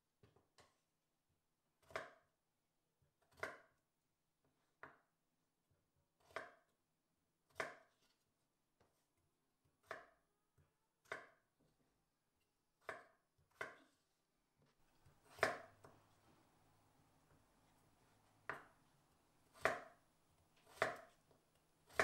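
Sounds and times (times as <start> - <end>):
knife chopping on cutting board: 1.8 - 2.2, 3.3 - 3.8, 6.2 - 6.7, 7.5 - 8.2, 9.8 - 10.2, 11.0 - 11.5, 12.8 - 14.0, 14.9 - 16.1, 18.4 - 18.8, 19.4 - 20.0, 20.6 - 22.0.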